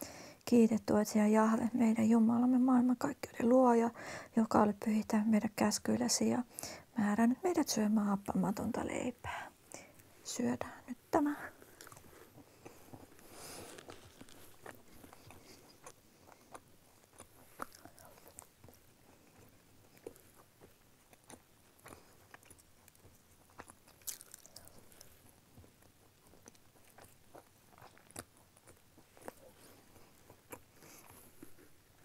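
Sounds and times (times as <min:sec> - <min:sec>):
person chewing crisp crunches: 0:11.6 - 0:32.0.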